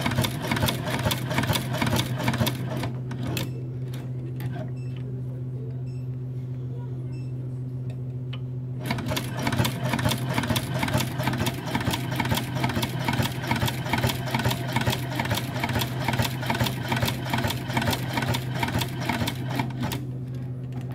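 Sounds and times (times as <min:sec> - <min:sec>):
sewing machine clatter: 0:00.0 - 0:04.0, 0:08.8 - 0:20.0.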